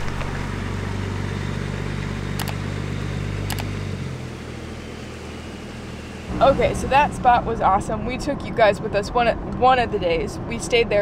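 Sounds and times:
truck engine running: 0.0 - 11.0
sharp clicks: 2.4 - 2.6, 3.4 - 3.7.

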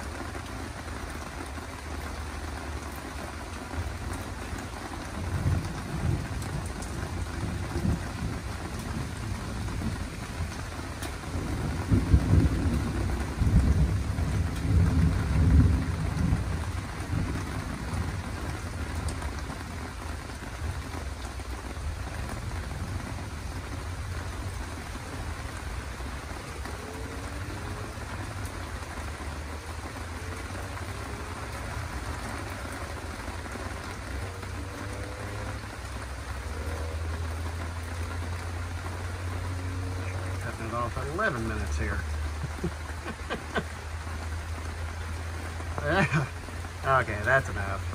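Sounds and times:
steady rain falling: 0.0 - 47.9
thunder rumbling: 5.1 - 19.0.

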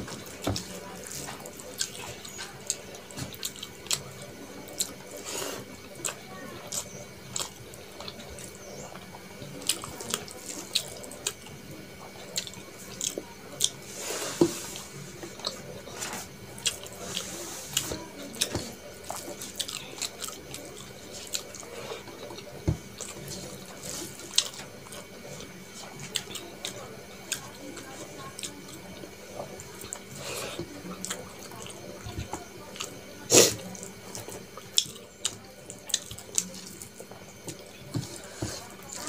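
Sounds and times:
wet squishing of hand mixing food: 0.0 - 39.0.

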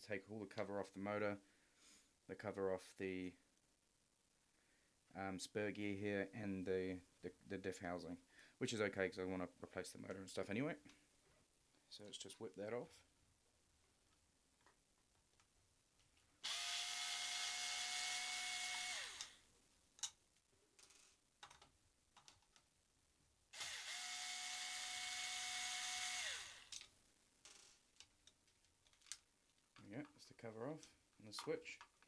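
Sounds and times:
cordless drill whining: 16.4 - 19.4, 23.6 - 26.8.

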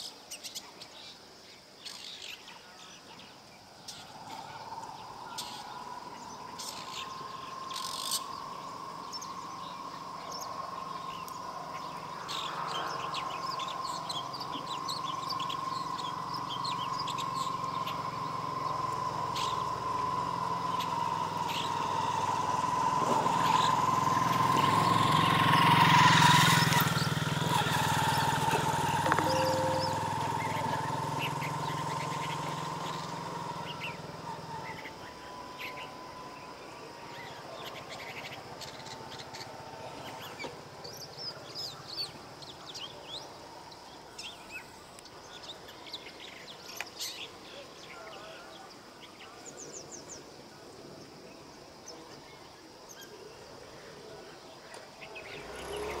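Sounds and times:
shrike singing chirps: 0.0 - 50.3
passing vehicle hum: 3.6 - 47.3, 55.0 - 56.0.

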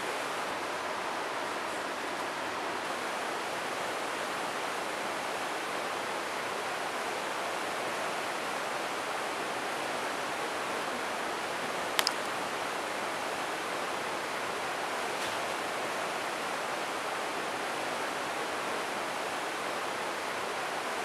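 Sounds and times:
sharp clicks: 12.0 - 12.4.

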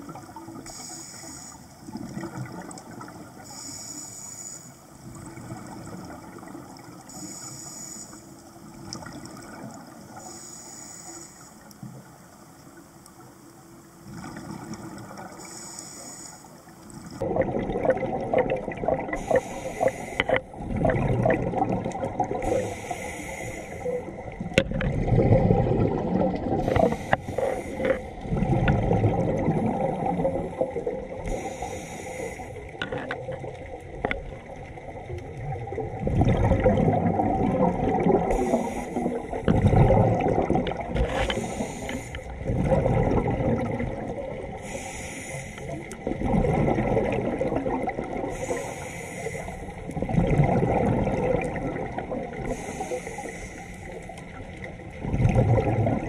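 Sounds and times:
regulator inhale hiss: 0.6 - 1.9, 3.4 - 5.0, 7.1 - 8.5, 10.1 - 11.9, 15.4 - 17.2, 19.2 - 20.5, 22.4 - 24.3, 26.6 - 28.2, 31.2 - 32.8, 38.3 - 39.4, 41.1 - 42.4, 44.5 - 45.9, 48.3 - 49.9, 52.4 - 54.1
regulator exhale bubbling: 17.1 - 32.8, 35.3 - 56.0.

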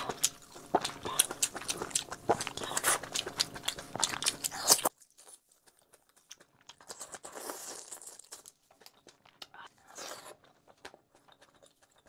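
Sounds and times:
close chewing with wet crunches: 0.0 - 12.0.

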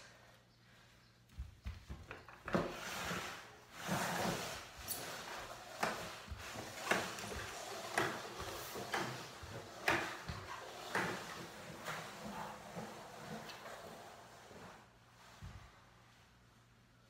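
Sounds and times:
body scraping across tile: 0.8 - 16.4
footsteps on tiled floor: 1.0 - 13.9.

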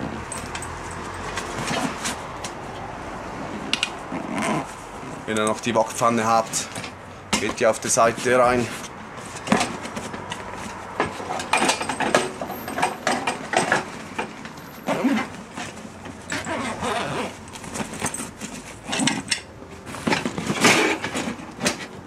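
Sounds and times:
zip being pulled closed: 3.5 - 5.2, 14.8 - 15.4, 16.3 - 17.4.

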